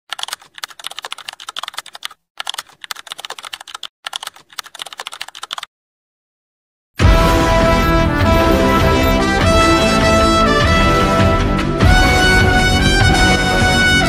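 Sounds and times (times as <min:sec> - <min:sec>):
keyboard typing clicks: 0:00.1 - 0:05.7.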